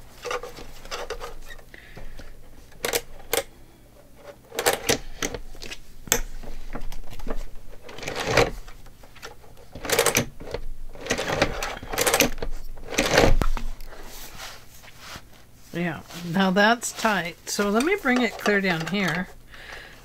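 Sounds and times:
binding machine clacking: 11.0 - 13.3.

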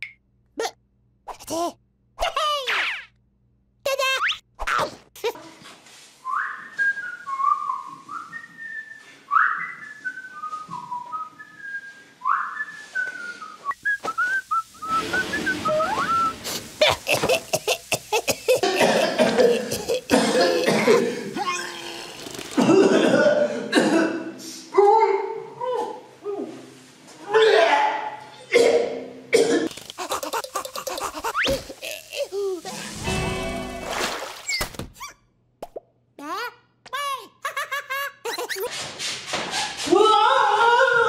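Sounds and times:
whistled tune: 6.2 - 16.4.

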